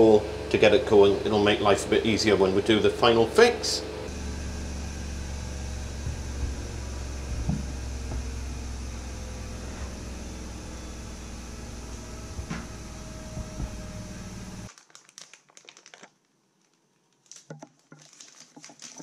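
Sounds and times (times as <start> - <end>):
power drill running: 0.0 - 14.7
plastic packet crinkling: 14.7 - 19.0.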